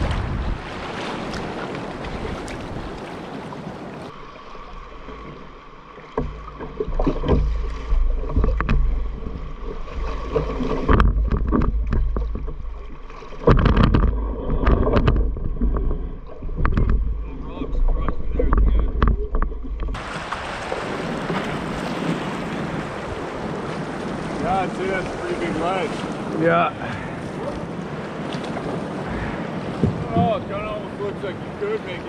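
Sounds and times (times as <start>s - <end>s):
wind rumble on microphone: 0.0s - 3.1s, 13.5s - 25.2s
paddle strokes splashing: 0.0s - 32.0s
rushing water: 0.0s - 32.0s
paddle knocking on hull: 5.0s - 26.3s, 26.9s - 30.9s.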